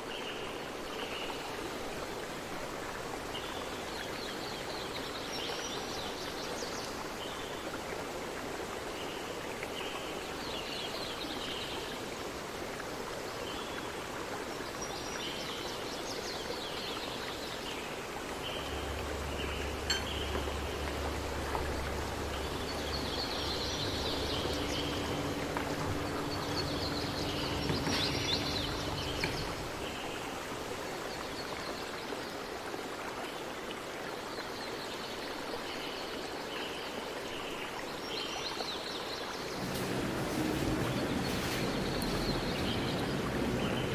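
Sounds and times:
rushing noise like running water: 0.0 - 43.9
low hum: 39.5 - 43.9.

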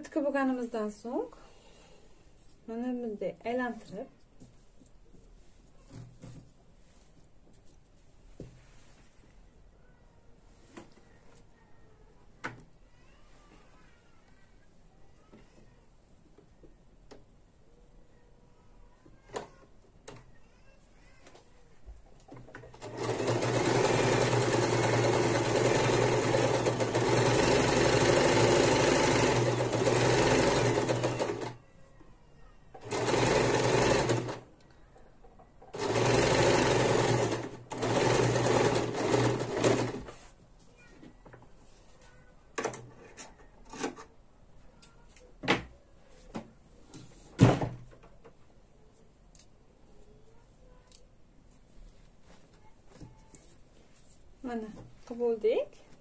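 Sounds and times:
sewing machine stitching: 22.7 - 31.6, 32.8 - 34.5, 35.7 - 40.2.

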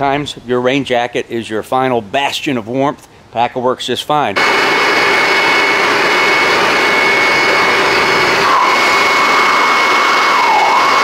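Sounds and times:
blower rushing air with whine: 4.4 - 11.0
man howling: 8.4 - 11.0.

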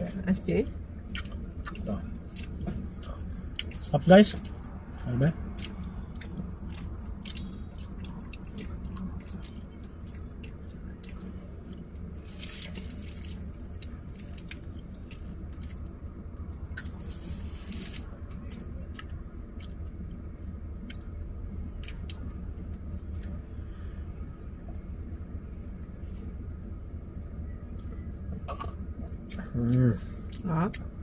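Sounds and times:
low hum in car cabin: 0.0 - 31.0
chewing burger: 0.9 - 23.5.

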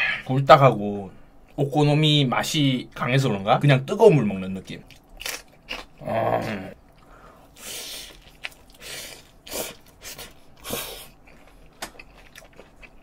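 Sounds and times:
man humming grunt: 6.0 - 6.8
sharp breaths through nose: 7.1 - 8.2
biting and chewing: 8.1 - 13.0.

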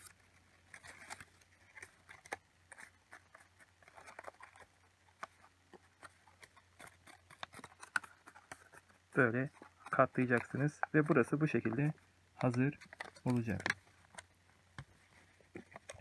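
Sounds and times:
paper crinkling: 0.0 - 16.0.

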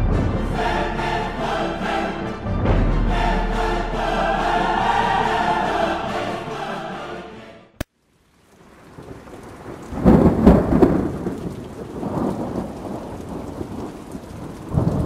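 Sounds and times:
steady rain: 7.8 - 15.0
thunder rumbling: 8.5 - 15.0.

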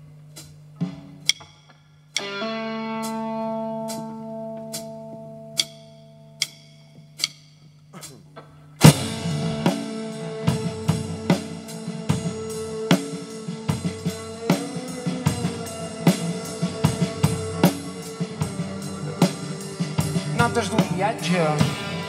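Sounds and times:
drum kit beat: 0.0 - 22.0
electric guitar: 2.2 - 5.6, 8.8 - 22.0.

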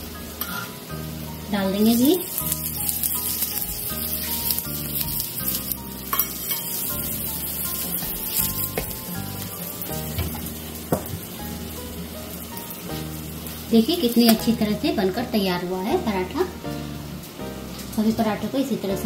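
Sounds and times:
flatbread sizzling on griddle: 0.0 - 18.7.

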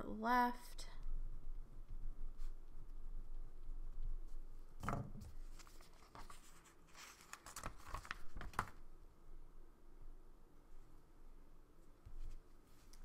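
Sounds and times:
sticker sheet crinkling: 5.5 - 8.8.

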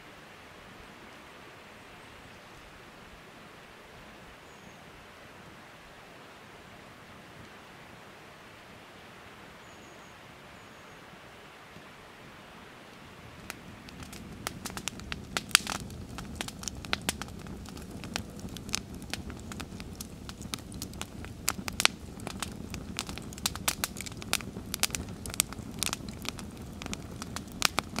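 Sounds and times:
campfire crackling: 11.1 - 28.0.

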